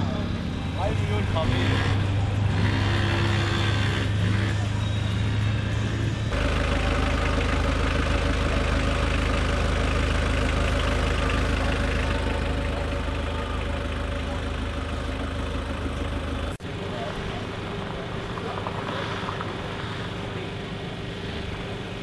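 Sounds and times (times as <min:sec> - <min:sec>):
race car engine revving: 0:00.0 - 0:16.6
engine idling nearby: 0:00.0 - 0:22.0.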